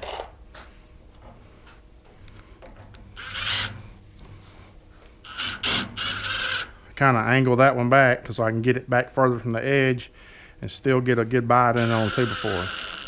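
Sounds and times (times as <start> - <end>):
screws clicking and rattling: 3.2 - 3.8, 5.3 - 6.7, 11.8 - 13.0.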